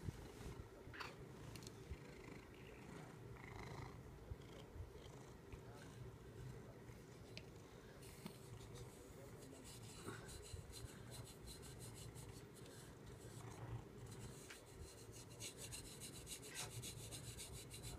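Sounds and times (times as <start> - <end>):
back scratcher scraping fur: 14.1 - 17.9.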